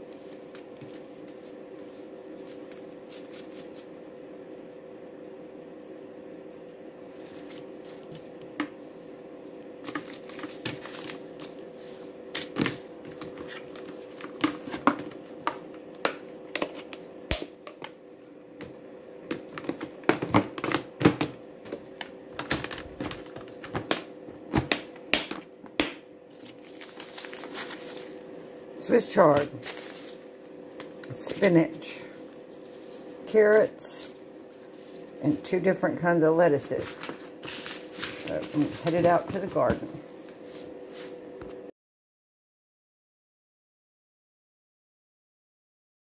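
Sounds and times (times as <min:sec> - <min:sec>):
steady hum: 0:00.0 - 0:41.7
paper rustling: 0:26.3 - 0:28.2, 0:29.5 - 0:30.3, 0:31.0 - 0:33.3, 0:36.7 - 0:41.1.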